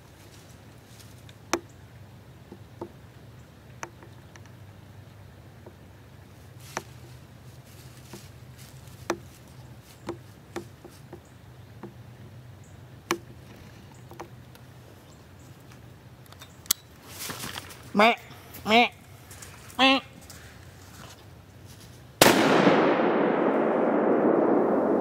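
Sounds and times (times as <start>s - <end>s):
steady low hum: 0.0s - 25.0s.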